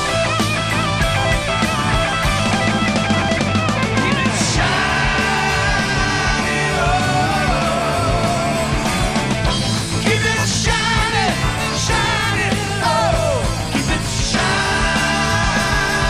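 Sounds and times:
distorted electric guitar: 0.0 - 16.0
drums and bass: 0.0 - 16.0
man singing: 4.0 - 9.1, 9.9 - 16.0.

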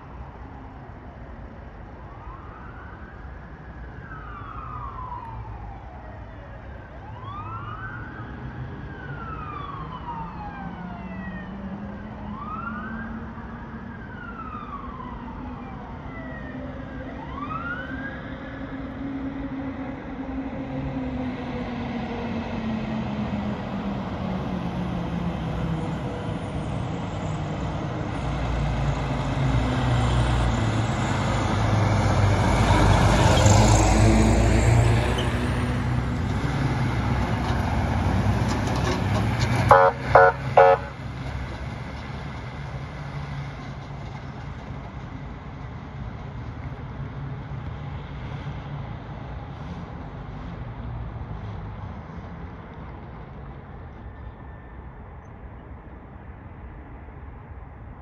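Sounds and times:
fire truck engine and tyres: 0.0 - 58.0
fire siren wailing: 1.8 - 41.2.

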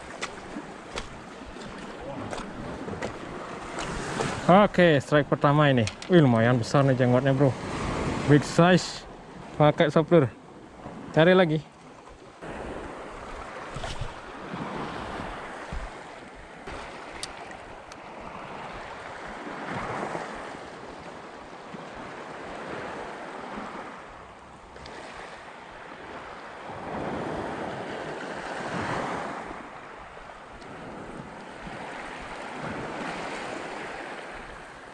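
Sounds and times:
waves washing over pebbles: 0.0 - 6.4
wind on microphone: 12.4 - 17.3.

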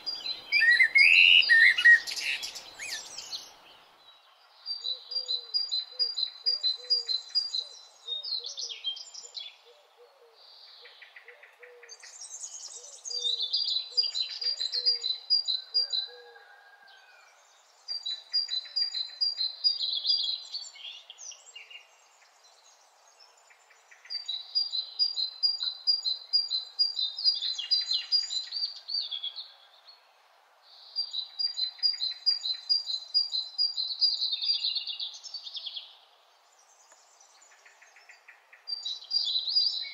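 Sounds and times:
songbird singing: 0.0 - 39.9.

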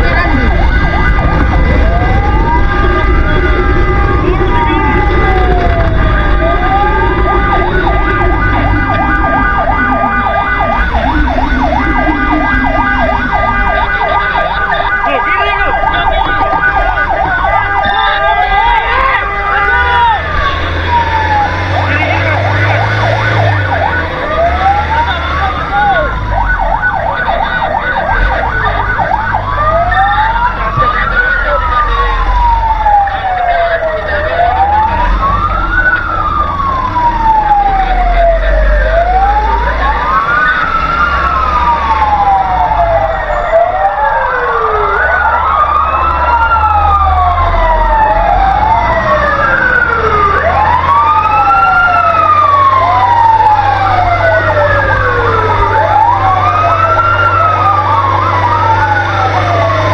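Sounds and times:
fire truck sirens wailing: 0.0 - 59.9
steady low rumble: 0.4 - 14.9.

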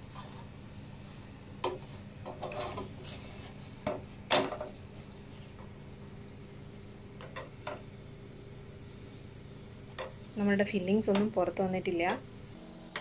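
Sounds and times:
plastic spatula scraping a pan: 2.3 - 3.8.

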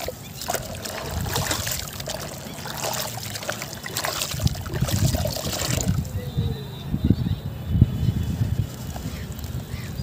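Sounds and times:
hands squelching wet cement: 0.0 - 6.1
water trickling: 0.0 - 6.2.

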